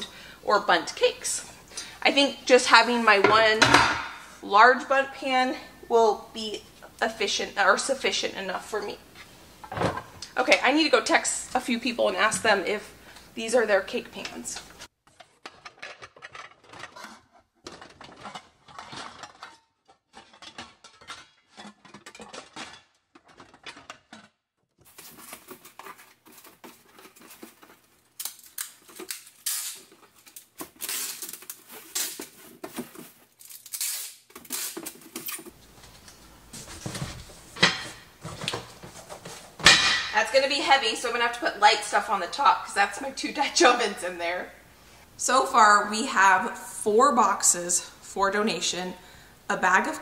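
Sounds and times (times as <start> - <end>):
metal bakeware clattering: 3.2 - 4.4, 15.2 - 24.0, 37.6 - 38.1, 39.6 - 40.4.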